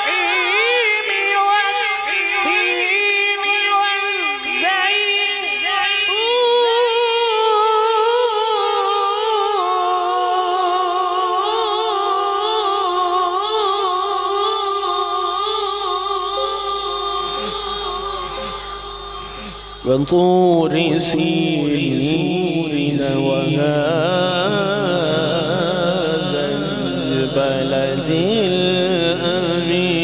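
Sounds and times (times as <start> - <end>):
man reciting melismatic chant: 0.0 - 30.0.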